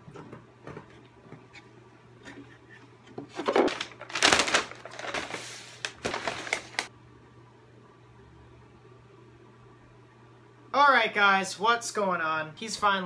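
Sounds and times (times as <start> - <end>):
paper bag rustling and crinkling: 3.3 - 6.9.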